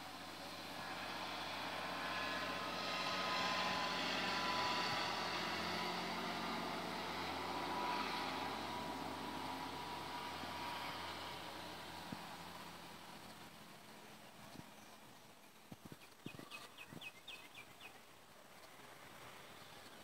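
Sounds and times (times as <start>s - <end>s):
truck driving past: 0.0s - 14.1s.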